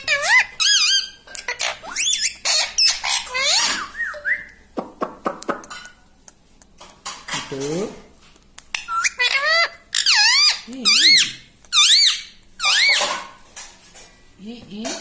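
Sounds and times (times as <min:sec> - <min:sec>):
parakeet chattering and calling: 0:00.0 - 0:04.3, 0:08.7 - 0:13.3.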